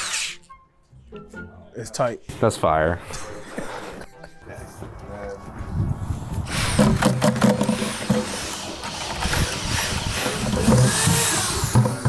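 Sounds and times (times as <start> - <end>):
electric drill driving screw: 6.5 - 12.0.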